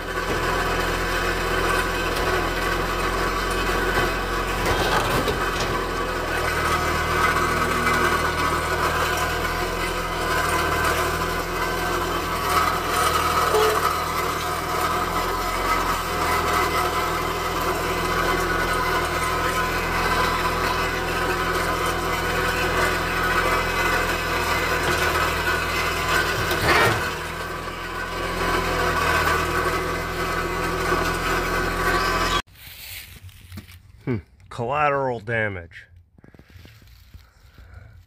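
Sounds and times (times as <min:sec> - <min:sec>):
tractor diesel engine running: 0:00.0 - 0:32.5
clunk: 0:00.1 - 0:27.4.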